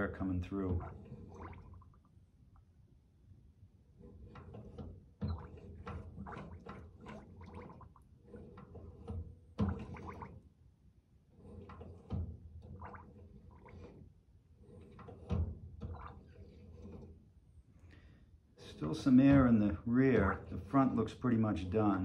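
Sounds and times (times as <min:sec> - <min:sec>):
brake fluid gurgling and bubbling: 0:00.0 - 0:02.2, 0:04.3 - 0:10.6, 0:11.4 - 0:17.5.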